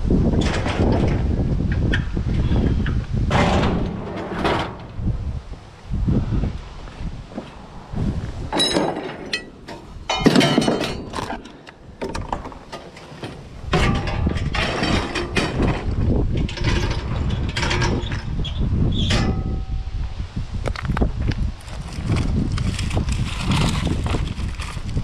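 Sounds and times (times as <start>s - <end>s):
low rumbling noise: 0.0s - 25.0s
metal tubing clanking and rattling: 0.3s - 5.1s, 8.5s - 19.9s.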